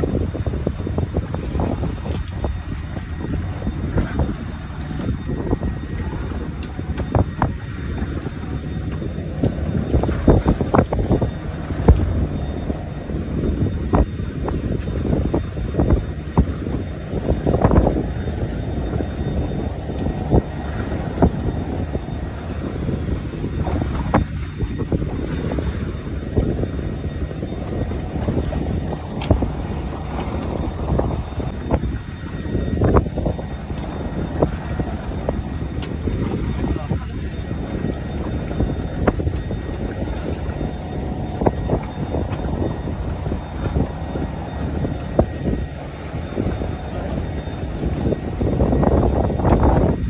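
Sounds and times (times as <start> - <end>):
water slapping against boat: 0.0 - 50.0
wind rumbling on microphone: 0.0 - 50.0.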